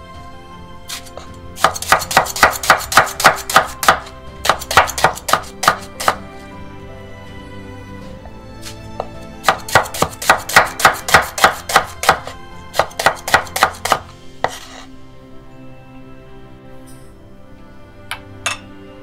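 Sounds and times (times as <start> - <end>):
knife chopping onion on board: 0.9 - 6.3, 9.0 - 14.7.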